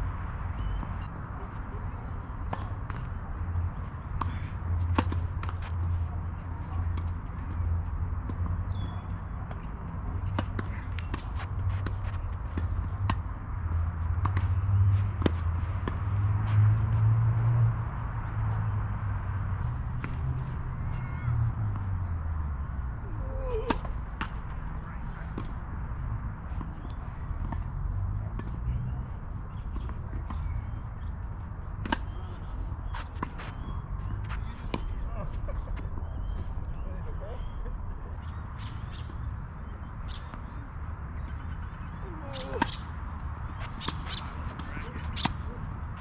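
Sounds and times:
tennis racquets hitting balls: 0:04.0 - 0:07.2, 0:10.2 - 0:16.9, 0:31.7 - 0:36.4, 0:41.5 - 0:46.0
footsteps on court: 0:10.3 - 0:13.2, 0:32.9 - 0:35.8
racket hitting ball: 0:43.6 - 0:45.5.

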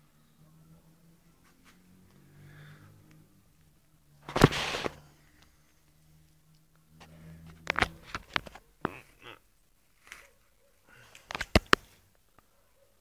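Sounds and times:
plastic tray rustling: 0:04.2 - 0:05.0
plastic clicks and taps on paving: 0:11.2 - 0:12.5.

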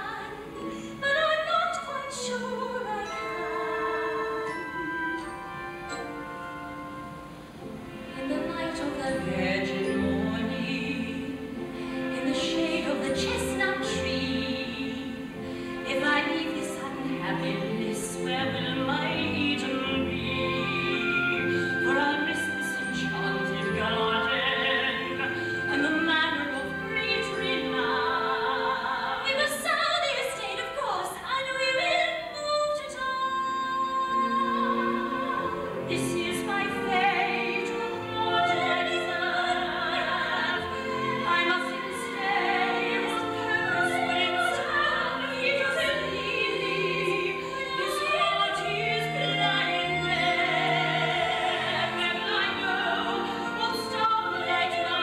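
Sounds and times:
woman singing operatically: 0:00.0 - 0:06.5, 0:08.0 - 0:55.0
instrumental accompaniment: 0:00.0 - 0:31.5.

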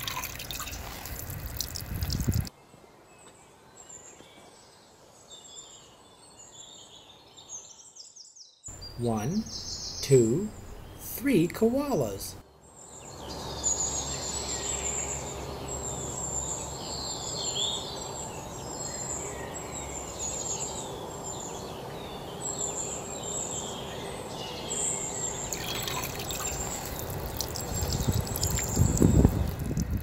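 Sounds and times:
water splashing into puddle: 0:00.0 - 0:02.5, 0:25.5 - 0:30.0
birds chirping: 0:00.0 - 0:30.0.

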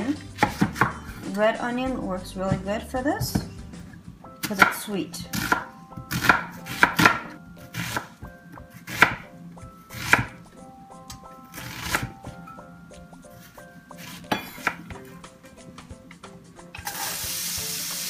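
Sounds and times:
knife chopping on wooden board: 0:00.4 - 0:01.2, 0:04.4 - 0:09.3, 0:09.9 - 0:10.4, 0:11.5 - 0:12.2, 0:14.0 - 0:15.0.

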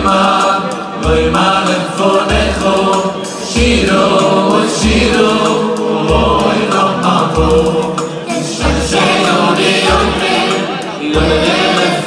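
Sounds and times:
deep bass beat: 0:00.0 - 0:10.5, 0:11.2 - 0:11.8
band playing: 0:00.0 - 0:12.0
men's choir singing in harmony: 0:00.0 - 0:12.0.

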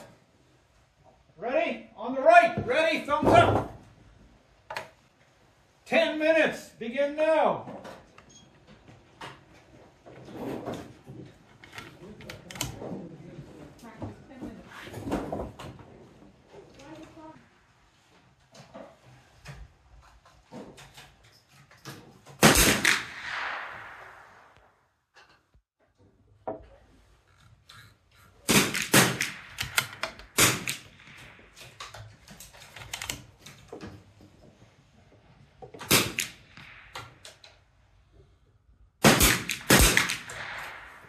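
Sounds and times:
rifle shots: 0:22.4 - 0:24.6, 0:28.4 - 0:31.8, 0:35.8 - 0:37.4, 0:39.0 - 0:41.0.

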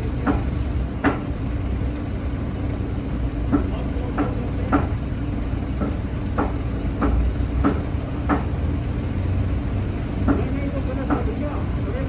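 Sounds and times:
low machine hum: 0:00.0 - 0:12.0
cleaver chopping on wooden board: 0:00.2 - 0:01.2, 0:05.8 - 0:08.5.

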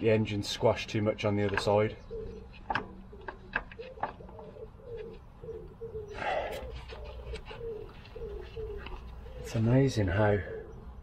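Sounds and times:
pigeon cooing: 0:02.0 - 0:11.0.

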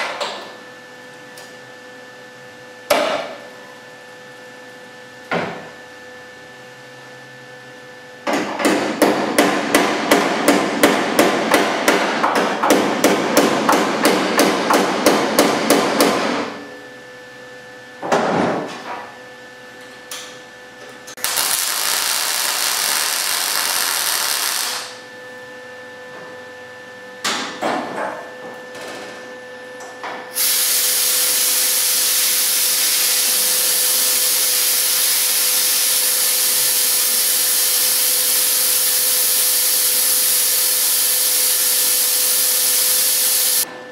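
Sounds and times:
welder arc crackling: 0:21.2 - 0:25.0.

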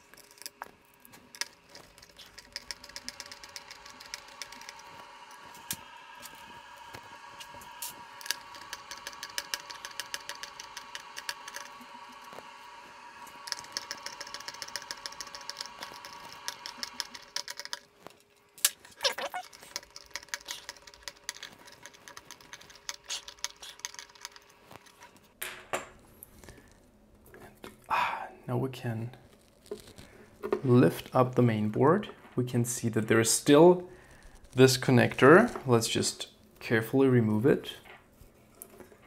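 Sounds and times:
sparse clicks: 0:00.2 - 0:05.8, 0:08.2 - 0:11.8, 0:13.3 - 0:17.9, 0:18.6 - 0:25.0
screwdriver ticking: 0:01.3 - 0:05.8, 0:07.8 - 0:11.8, 0:13.3 - 0:17.8.

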